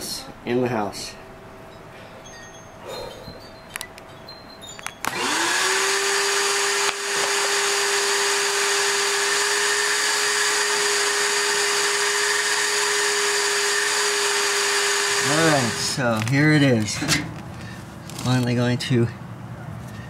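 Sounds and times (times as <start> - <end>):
shop vacuum motor whine: 5.0 - 16.4
vacuum hose rushing air: 5.1 - 16.1.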